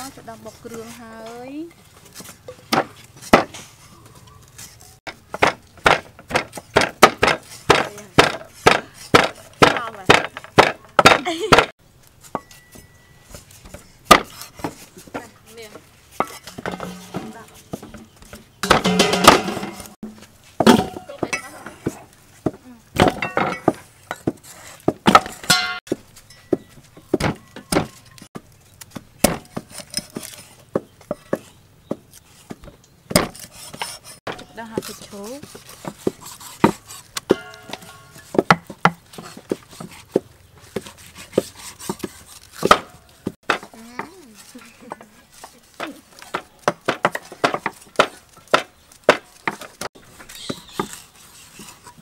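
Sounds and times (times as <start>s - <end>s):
cleaver chopping on wooden board: 2.7s - 3.6s, 5.1s - 11.7s, 13.7s - 14.8s, 29.2s - 44.1s, 45.8s - 49.9s
pestle striking clay mortar: 5.1s - 11.7s, 14.1s - 15.2s, 18.6s - 28.0s, 33.1s - 44.2s, 45.8s - 49.9s.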